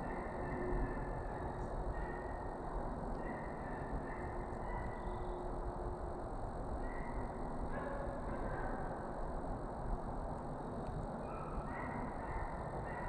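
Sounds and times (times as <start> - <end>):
distant animal calls: 0.0 - 2.6, 3.2 - 5.5
steady background hiss and rumble: 0.0 - 13.0.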